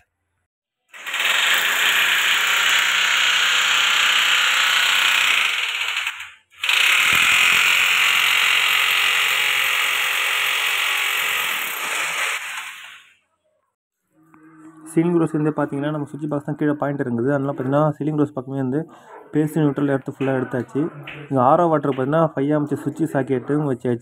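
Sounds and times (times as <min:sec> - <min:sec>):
cordless drill drilling into wall: 0:00.9 - 0:13.2.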